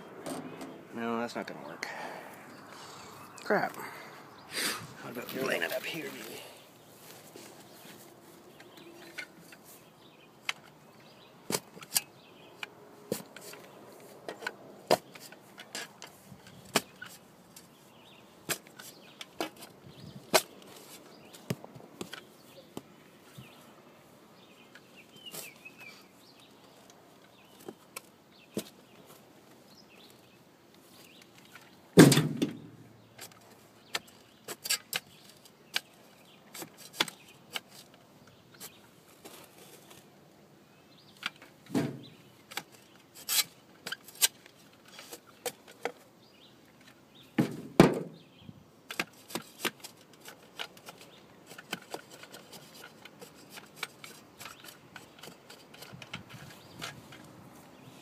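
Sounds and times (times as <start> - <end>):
blade crunching and scraping dirt: 4.7 - 8.1, 13.1 - 22.6, 33.2 - 40.1, 41.1 - 46.2, 48.9 - 58.0.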